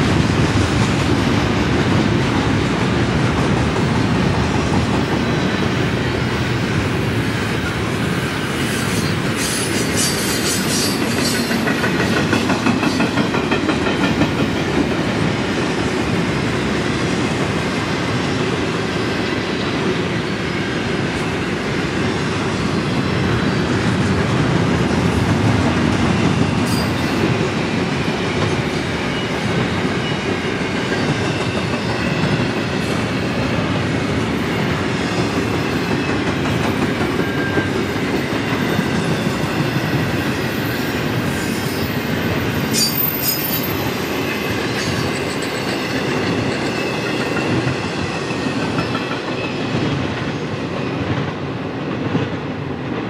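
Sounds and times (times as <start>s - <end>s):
clickety-clack over rail joints: 0.0s - 18.8s, 22.4s - 53.0s
train wheels rumbling on rail: 0.0s - 53.0s
faint high wheel squeal: 37.1s - 49.8s.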